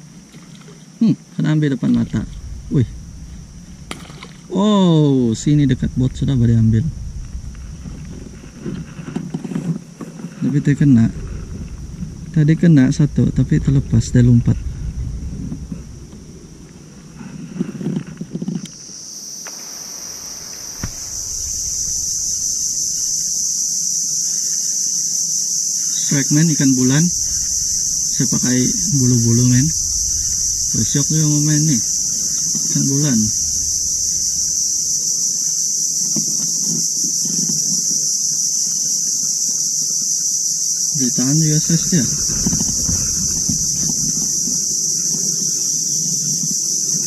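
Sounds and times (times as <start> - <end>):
insects droning: 0.0 - 47.0
low bumps: 1.7 - 18.8, 19.5 - 23.8, 26.0 - 36.9, 41.2 - 46.6.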